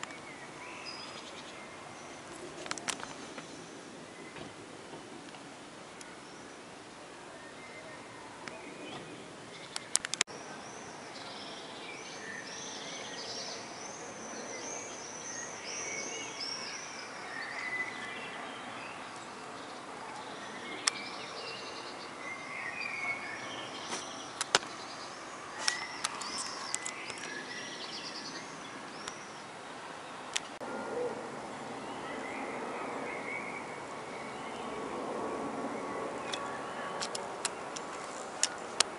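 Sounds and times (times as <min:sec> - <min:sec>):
songbirds chirping: 0:00.0 - 0:38.9
distant jet airliner noise: 0:08.4 - 0:38.9
sharp clicks: 0:09.7 - 0:10.3, 0:24.4 - 0:24.7.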